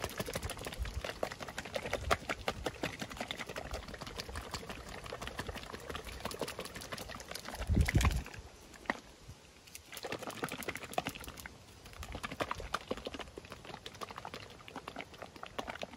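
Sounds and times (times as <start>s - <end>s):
pudding sloshing in plastic cup: 0.0s - 9.1s.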